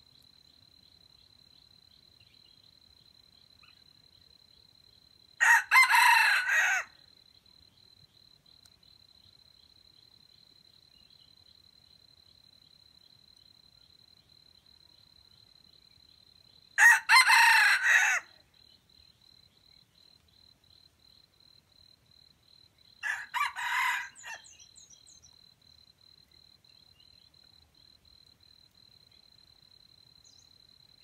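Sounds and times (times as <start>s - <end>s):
rooster crowing: 5.4s - 7.0s, 16.8s - 18.4s, 23.0s - 24.5s.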